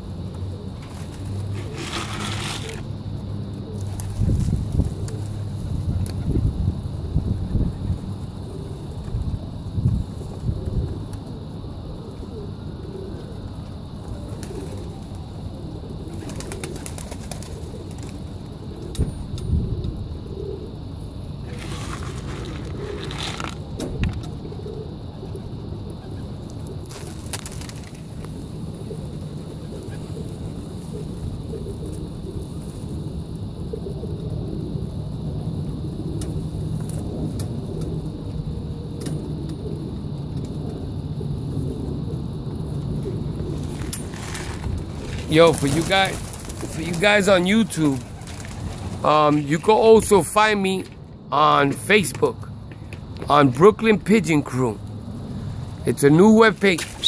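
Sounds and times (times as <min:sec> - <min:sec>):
pigeons cooing: 0:00.0 - 0:50.3
wind rumbling on microphone: 0:03.8 - 0:12.7, 0:17.5 - 0:51.3.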